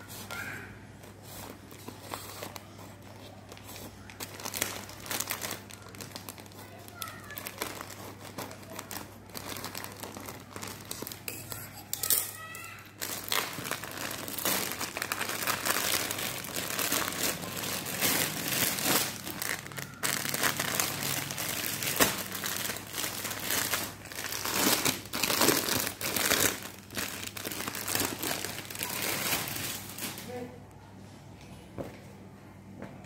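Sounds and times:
plastic packaging crinkling: 0:01.2 - 0:30.5.

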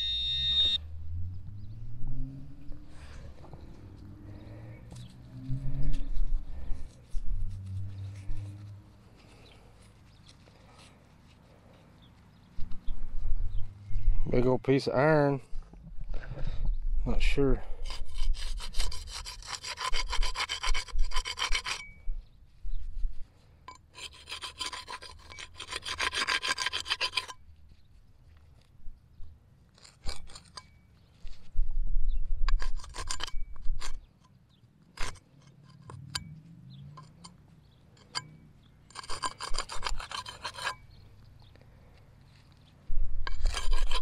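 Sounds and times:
digging tool scraping soil: 0:02.9 - 0:12.4, 0:17.7 - 0:21.9, 0:23.9 - 0:27.7, 0:29.7 - 0:31.6, 0:32.5 - 0:41.2, 0:41.9 - 0:44.0.

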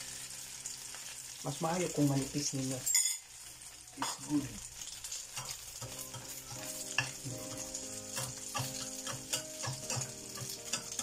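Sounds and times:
egg and chorizo sizzling: 0:00.0 - 0:11.0
spatula scraping and tapping pan: 0:05.3 - 0:11.0.

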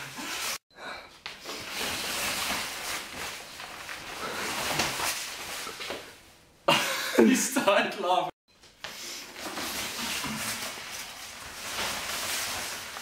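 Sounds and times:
jacket fabric rustling: 0:01.2 - 0:06.5, 0:08.8 - 0:13.0.

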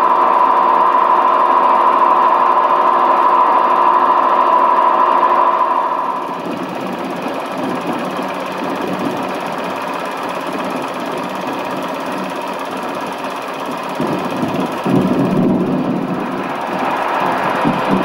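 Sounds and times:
film projector whirring: 0:00.0 - 0:18.0.

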